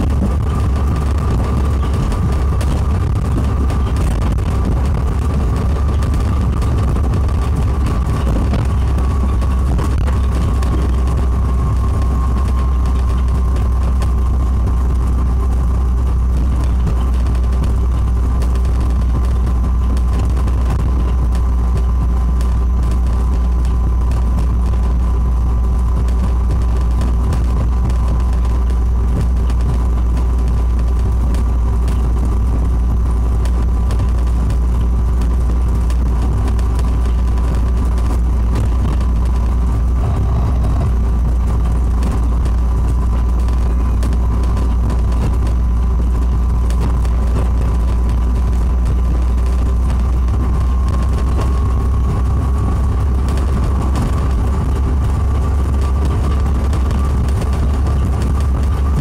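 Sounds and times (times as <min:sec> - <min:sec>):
rubber tyres rumbling on guideway: 0:00.0 - 0:59.0
electric motor whine: 0:36.2 - 0:59.0.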